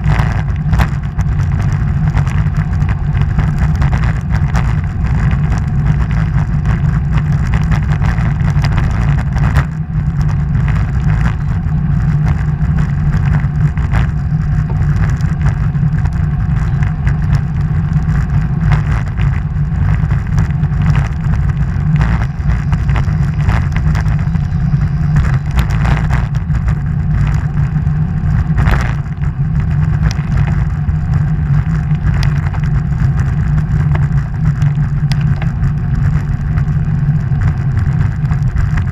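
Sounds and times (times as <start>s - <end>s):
bike vibration knocks: 0.0s - 38.9s
tyre noise on road: 0.0s - 38.9s
wind rumble on microphone: 0.0s - 38.9s.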